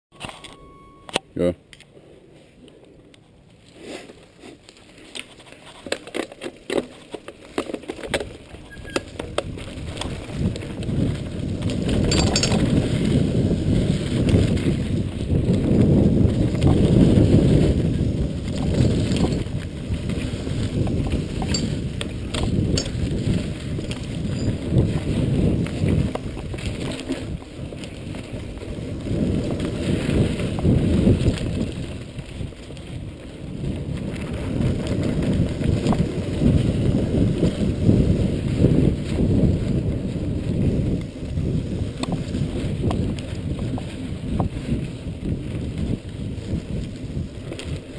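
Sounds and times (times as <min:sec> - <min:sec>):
tyres rumbling on dirt trail: 0:02.0 - 0:47.9
bike rattling: 0:03.4 - 0:47.9
wind on microphone: 0:08.1 - 0:47.9
sharp clicks and rattles: 0:11.9 - 0:12.9, 0:21.1 - 0:24.6.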